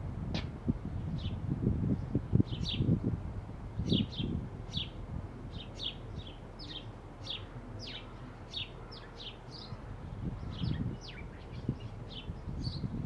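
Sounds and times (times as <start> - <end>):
sparrows chirping: 0.9 - 3.1, 3.7 - 13.0.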